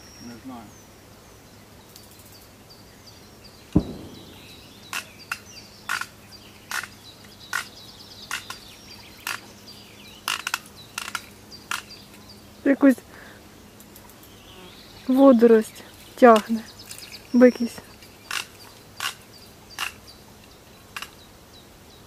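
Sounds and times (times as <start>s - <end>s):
faint birdsong twittering: 0.0s - 22.0s
dull thump: 3.8s - 4.6s.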